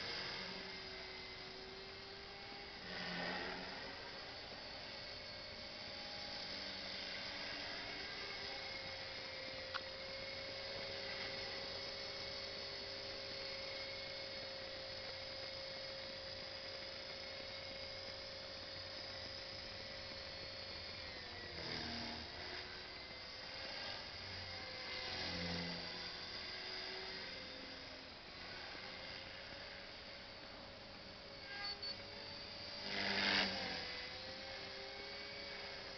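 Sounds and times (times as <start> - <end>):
rc helicopter whine: 0.0 - 35.9.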